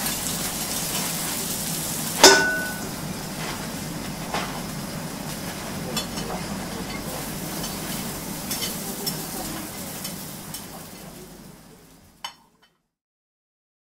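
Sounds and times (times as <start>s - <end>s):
griddle sizzling: 0.0s - 12.8s
dishes and cutlery clinking: 2.2s - 3.5s, 5.9s - 9.4s, 12.2s - 12.8s.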